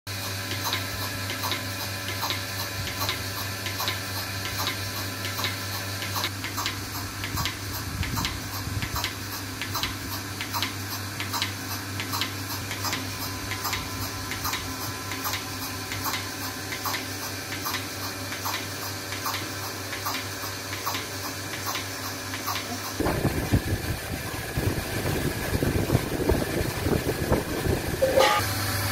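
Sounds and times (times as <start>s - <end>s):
vacuum pump hum: 21.0s - 28.9s.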